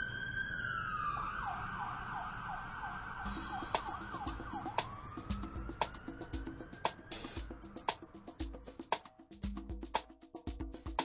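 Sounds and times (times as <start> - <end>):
emergency siren wailing and yelping: 0.0 - 7.7
percussive music with wood-block clicks: 3.3 - 11.0.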